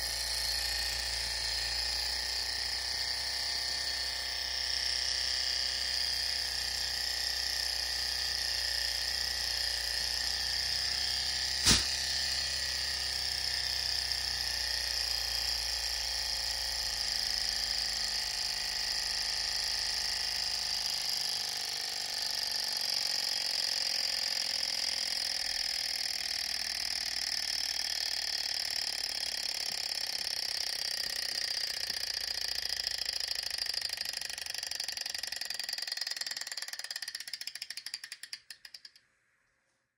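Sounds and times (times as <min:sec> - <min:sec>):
model engine whirring: 0:00.0 - 0:39.1
sharp click: 0:11.6 - 0:12.0.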